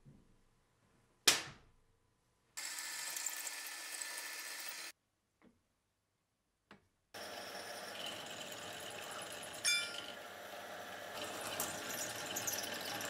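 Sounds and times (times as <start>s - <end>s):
drill press drilling into steel: 7.2s - 13.0s.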